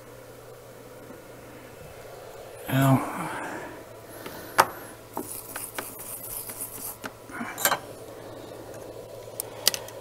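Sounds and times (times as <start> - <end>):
soldering iron scraping: 4.2 - 7.9.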